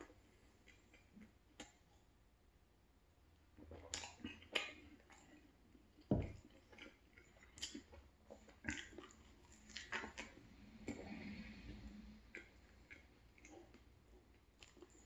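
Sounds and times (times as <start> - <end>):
wet mouth sounds: 3.5 - 15.0
gulping milk: 3.6 - 15.0.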